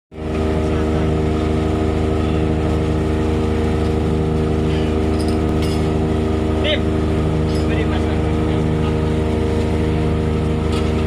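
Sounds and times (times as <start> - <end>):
ship engine droning: 0.1 - 11.0.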